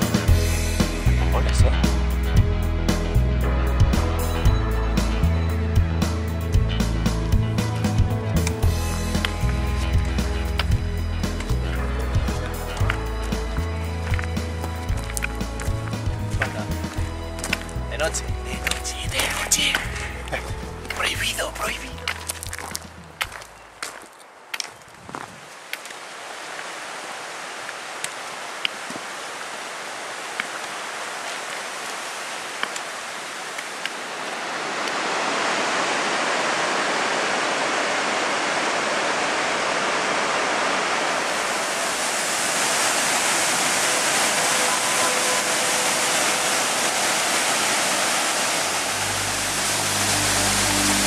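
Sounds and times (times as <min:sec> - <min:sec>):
waterfall rushing: 0:08.4 - 0:22.9, 0:25.8 - 0:51.0.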